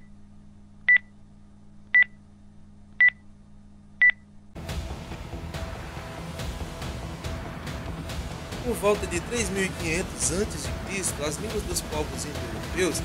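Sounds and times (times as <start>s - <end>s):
low steady hum: 0.0s - 12.8s
music: 4.6s - 13.0s.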